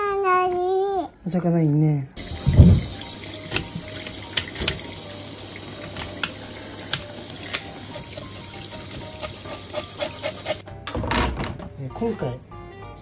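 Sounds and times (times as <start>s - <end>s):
tap running into metal sink: 2.2s - 5.1s, 5.7s - 10.5s
kitchen scissors snipping: 6.0s - 10.6s.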